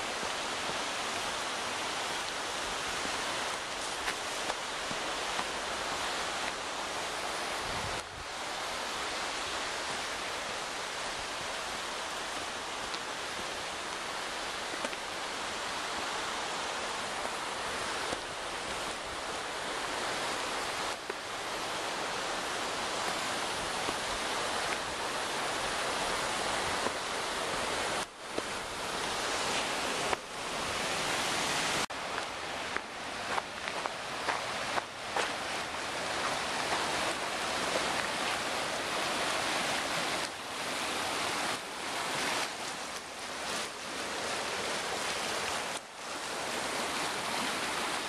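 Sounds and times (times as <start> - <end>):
creek water flowing: 0.0 - 48.0.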